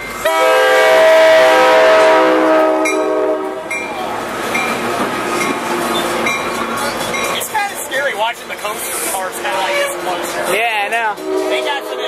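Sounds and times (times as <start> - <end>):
train coaches rumbling past: 0.0 - 12.0
locomotive horn blast: 0.2 - 3.8, 9.3 - 12.0.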